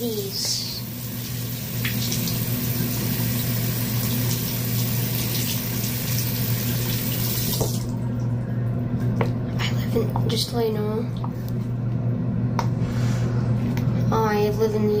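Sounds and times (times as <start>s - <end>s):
tap water running into sink: 0.1s - 7.9s.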